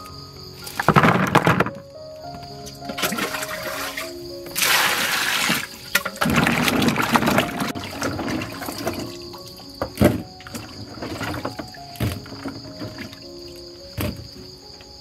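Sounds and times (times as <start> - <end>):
water pouring into plastic basin: 2.9 - 14.2
hands sloshing in water: 3.0 - 13.2.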